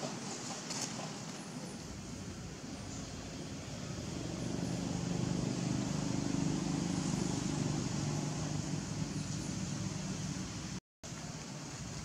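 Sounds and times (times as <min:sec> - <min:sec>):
outdoor hiss: 0:00.0 - 0:12.0
motor engine humming: 0:01.9 - 0:10.8.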